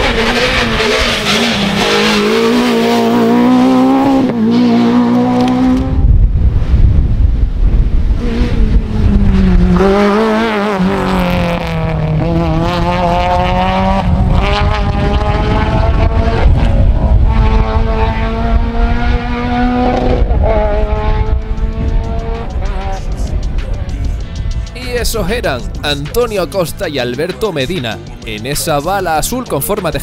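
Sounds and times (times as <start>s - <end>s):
rally car engine revving: 0.0s - 30.0s
wind rumble on microphone: 3.0s - 25.9s.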